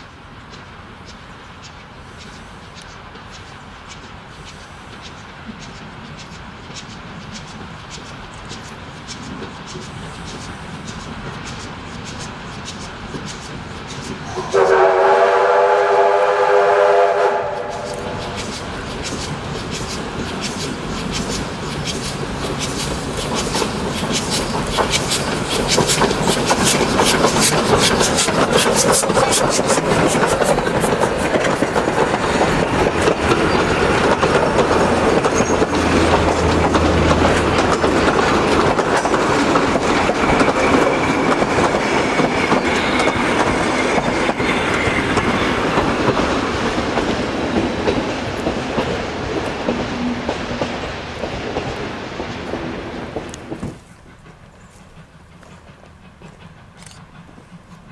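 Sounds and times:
train wheels clattering over rail joints: 0.0 - 14.6, 17.6 - 57.9
sharp locomotive exhaust beats: 0.0 - 57.9
steam locomotive whistle: 14.2 - 18.4.

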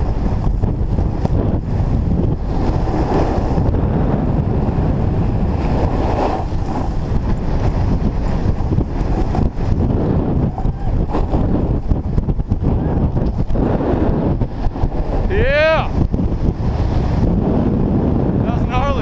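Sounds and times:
snowboard scraping over snow: 0.0 - 19.0
wind rushing over microphone: 0.0 - 19.0.

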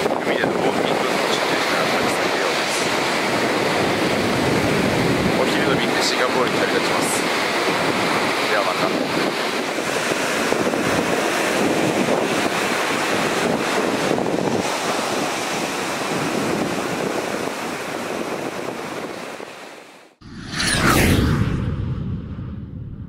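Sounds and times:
wind buffeting microphone: 0.0 - 19.6
ocean surf breaking on beach: 0.0 - 20.1.

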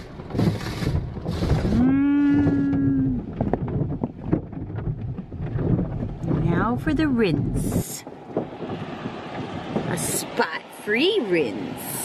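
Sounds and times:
water spray hitting car: 0.0 - 1.8.

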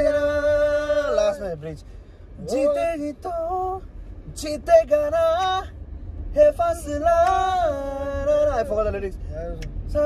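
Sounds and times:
men singing a cappella: 0.0 - 1.8, 2.4 - 5.7
low rumble of car: 0.0 - 10.0.

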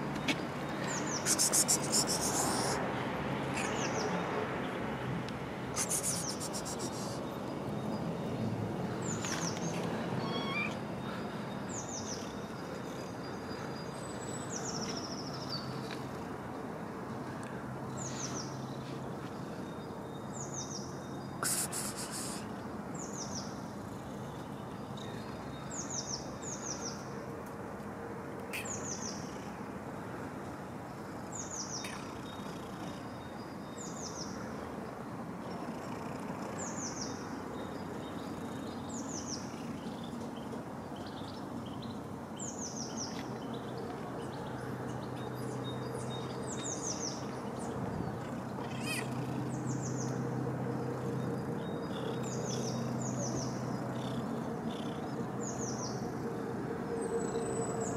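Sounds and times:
outdoor background noise: 0.0 - 57.9
bird chirping: 0.8 - 2.8.

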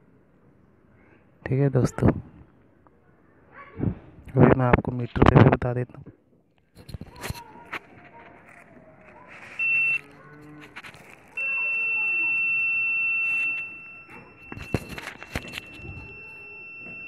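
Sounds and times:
high-pitched meter beep: 9.6 - 10.1, 11.3 - 17.0.

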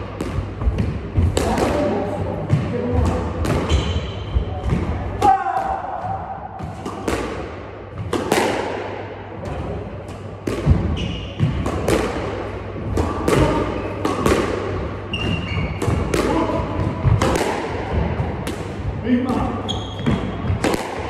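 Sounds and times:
squash ball hits: 0.0 - 21.0
shoes squeaking on court: 3.7 - 4.5, 10.9 - 11.6, 15.1 - 15.8, 19.6 - 20.4.

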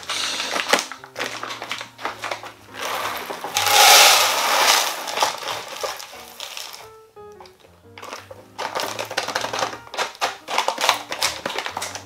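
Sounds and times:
coffee beans pouring into container: 0.0 - 6.9
paper bag rustling: 0.0 - 12.0.

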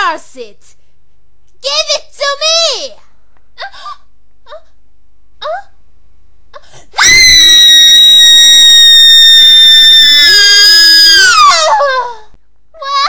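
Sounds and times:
woman screaming: 7.0 - 12.2.

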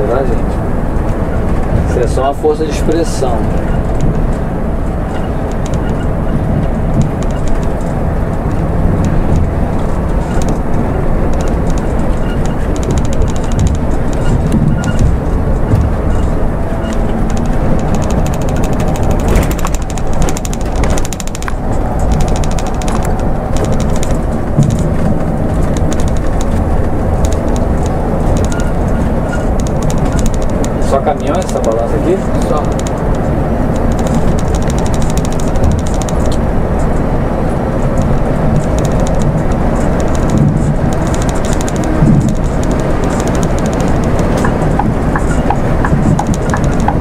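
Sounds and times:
coach engine running: 0.0 - 47.0
road and tyre noise: 0.0 - 47.0.

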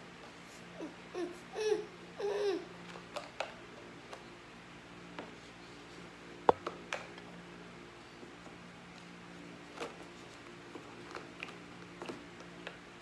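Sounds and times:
toddler babbling: 0.8 - 2.7.

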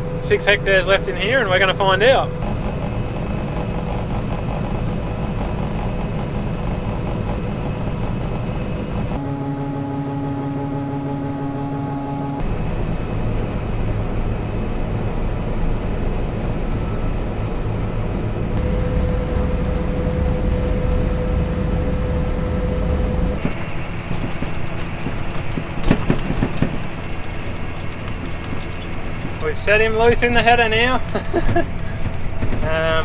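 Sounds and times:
steady whine: 0.0 - 24.1
combine harvester engine drone: 0.0 - 33.0
clicks and rattles: 23.4 - 29.4.

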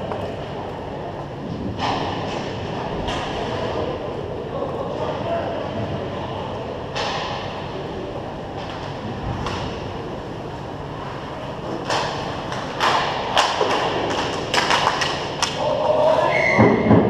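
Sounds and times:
rink hall hum: 0.0 - 17.0
hockey sticks and puck clacking: 6.9 - 7.7, 8.5 - 10.0, 11.0 - 15.8.

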